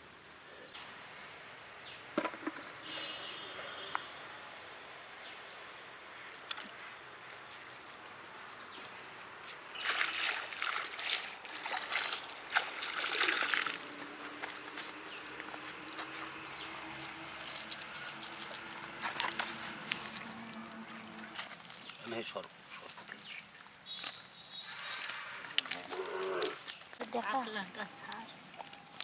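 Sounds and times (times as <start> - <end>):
water sloshing off net: 9.7 - 14.7
water dripping: 9.7 - 29.0.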